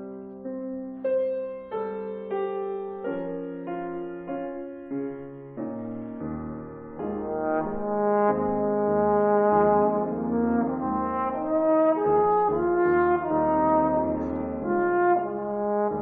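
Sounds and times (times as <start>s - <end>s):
trombone playing slow melody: 7.0s - 16.0s.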